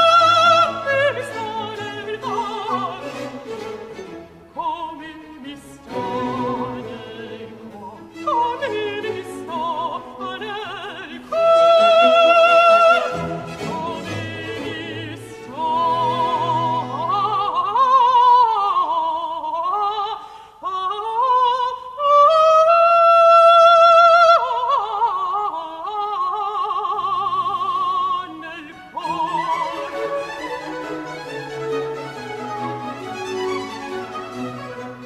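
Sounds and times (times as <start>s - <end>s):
orchestral accompaniment: 0.0s - 17.5s, 28.4s - 35.0s
countertenor singing opera aria: 0.0s - 35.0s.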